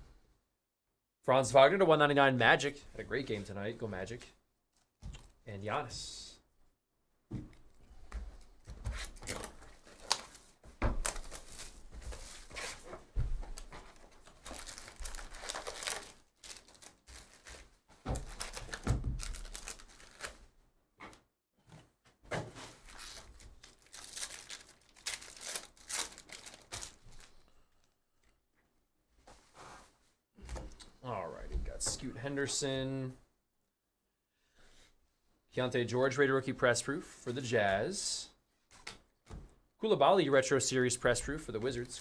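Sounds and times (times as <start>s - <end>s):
foil packs crinkling: 13.5s - 20.4s, 22.8s - 27.4s
foil pack tearing open: 14.5s - 17.6s, 18.2s - 20.4s, 22.9s - 27.3s.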